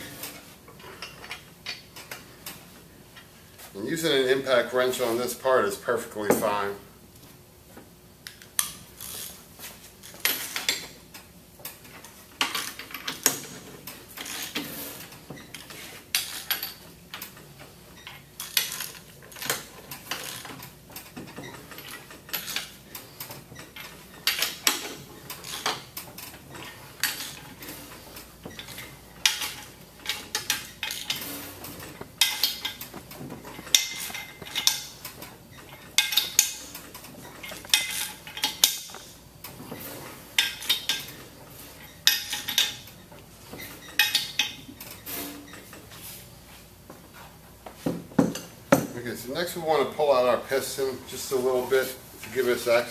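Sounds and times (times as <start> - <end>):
wrench clinking on metal bolts: 33.6 - 35.0, 43.9 - 44.7.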